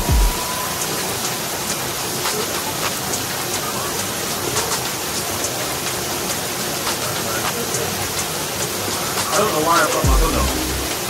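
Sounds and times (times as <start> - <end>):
water splashes and drips: 0.0 - 11.0
waterfall rushing: 0.0 - 11.0.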